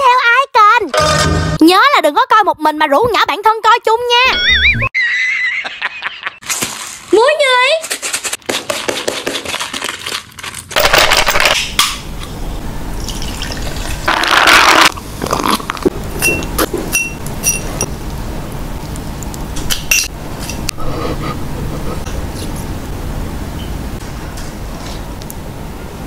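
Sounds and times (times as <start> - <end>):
glassware clinking: 16.2 - 17.9.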